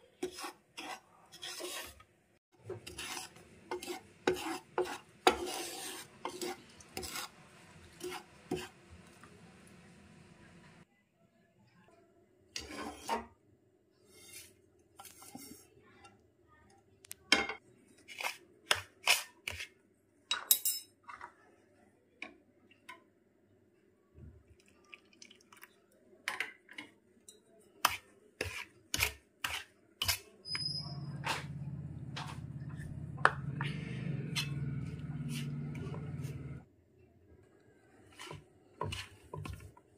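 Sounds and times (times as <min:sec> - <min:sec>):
steady low hum: 0:31.0 - 0:36.6.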